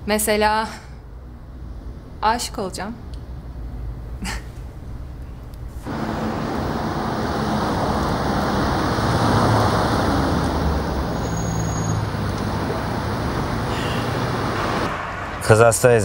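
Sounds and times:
low engine hum: 3.0 - 15.6
passing cars rushing: 5.8 - 16.0.

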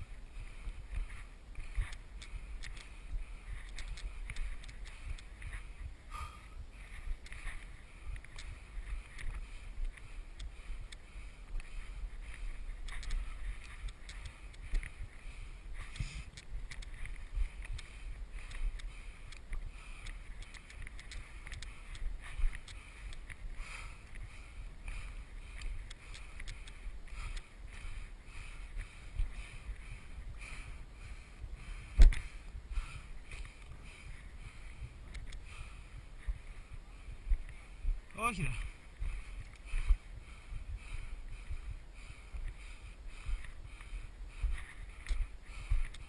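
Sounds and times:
wind rumble on microphone: 0.0 - 46.0.

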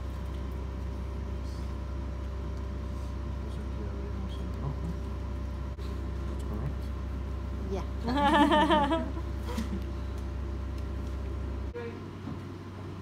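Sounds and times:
faint machinery whine: 0.0 - 13.0
low mechanical hum: 0.0 - 13.0.

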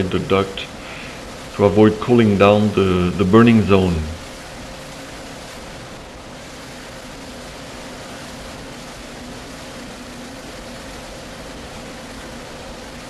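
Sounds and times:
low hum: 0.0 - 12.2
mid-pitched machine whine: 0.0 - 13.0.

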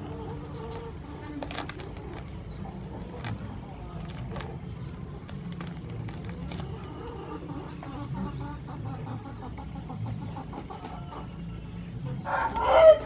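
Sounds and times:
chickens clucking: 0.0 - 13.0
loud chicken call: 12.3 - 13.0.

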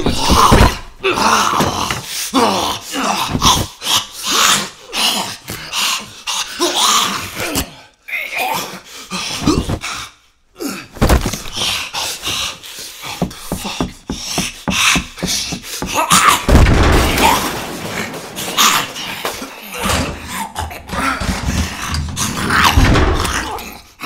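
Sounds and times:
thuds and blows: 11.0 - 11.7, 13.2 - 23.6
heavy thumps: 13.1 - 23.5.

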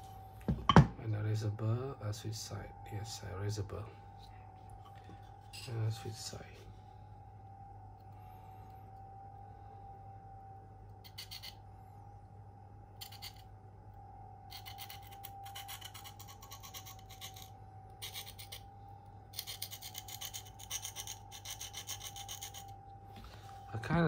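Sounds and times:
blade rasping on sharpening stone: 11.0 - 11.6, 13.0 - 13.4, 14.5 - 18.6, 19.3 - 22.7.

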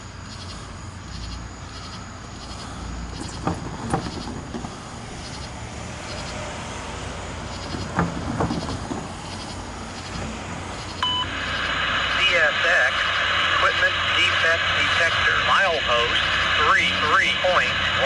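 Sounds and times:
steady radio tone: 0.0 - 6.5, 7.5 - 18.0
freight train rumble: 0.0 - 18.0
sharp wheel squeaks: 1.1 - 6.5, 7.5 - 11.0.

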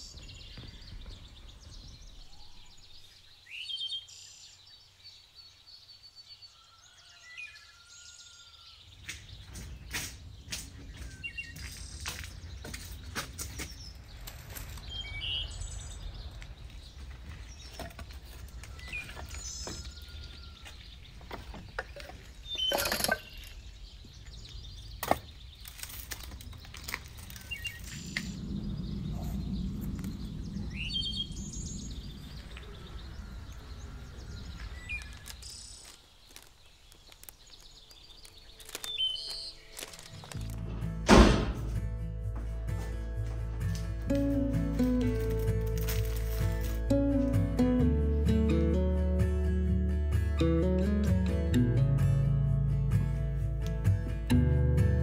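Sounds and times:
small birds chirping: 0.0 - 40.6
sticks dropped into basket: 21.5 - 23.6, 43.7 - 47.0
low rumble: 27.6 - 35.2.

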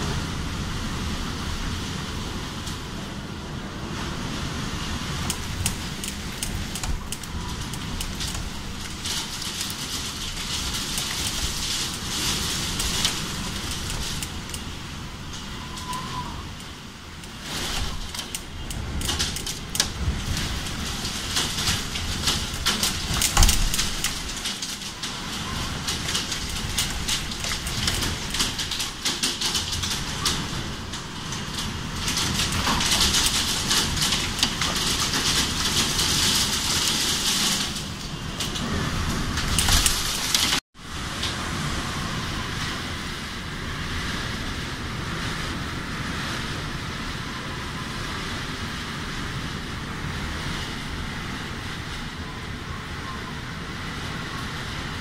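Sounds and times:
gusting wind: 0.0 - 55.0
heavy rain hissing: 0.0 - 55.0
raindrops tapping: 5.2 - 15.9, 16.5 - 38.7.

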